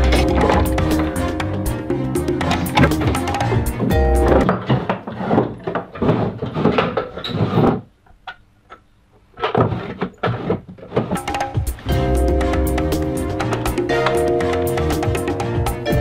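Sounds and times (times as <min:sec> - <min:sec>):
wooden drawers opening and shutting: 0:00.0 - 0:11.7.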